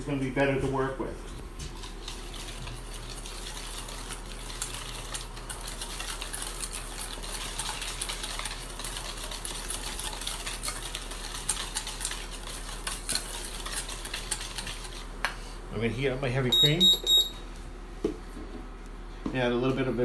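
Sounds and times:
whisk clicking against metal bowl: 0:02.0 - 0:15.0.

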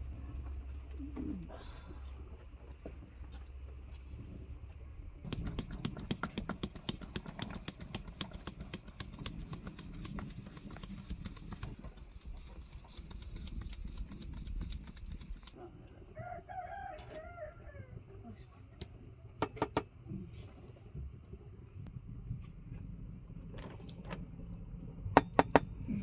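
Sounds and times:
hand sieve tapping: 0:05.3 - 0:11.7.

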